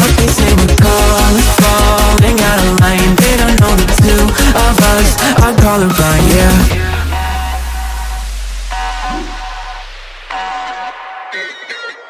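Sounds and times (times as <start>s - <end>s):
deep bass note: 0.8s - 10.5s
sustained synth tones: 3.6s - 11.0s.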